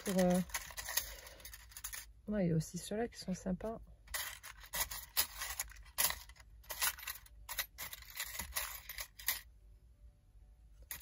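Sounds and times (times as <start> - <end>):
small metal pieces clicking: 0.0 - 2.1, 4.1 - 9.4.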